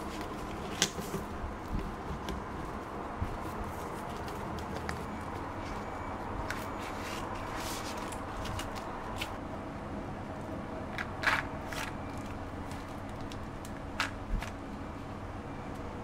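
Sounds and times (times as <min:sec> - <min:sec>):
leaves and plastic glove rustling: 0:00.0 - 0:09.4
steady background hum: 0:00.0 - 0:16.0.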